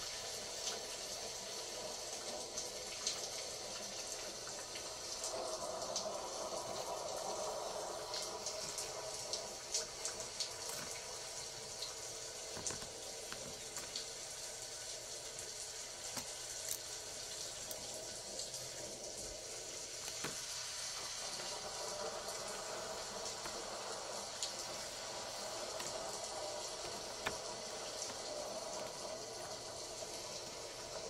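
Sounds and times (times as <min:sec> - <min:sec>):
steady rain: 0:00.0 - 0:31.0.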